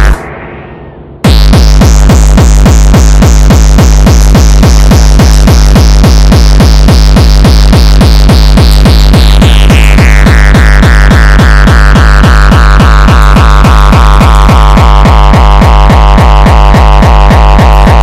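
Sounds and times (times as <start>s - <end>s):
fast heavy kick-drum beat: 0.0s - 0.2s, 1.2s - 18.0s
tone: 0.0s - 2.3s
high synth line: 0.0s - 3.5s.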